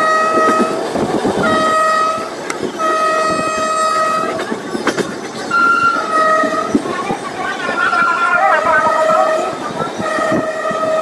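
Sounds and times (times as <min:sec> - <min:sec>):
train horn blasts: 0:00.0 - 0:00.8, 0:01.4 - 0:04.4, 0:05.5 - 0:06.8, 0:07.8 - 0:11.0
moving train rumble and clatter: 0:00.0 - 0:11.0.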